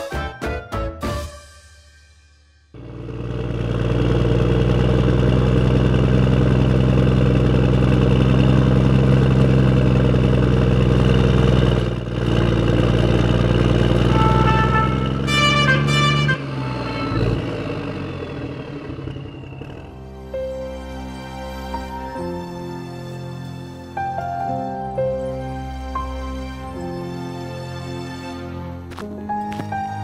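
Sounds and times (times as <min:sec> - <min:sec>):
truck engine running: 0:02.7 - 0:24.5.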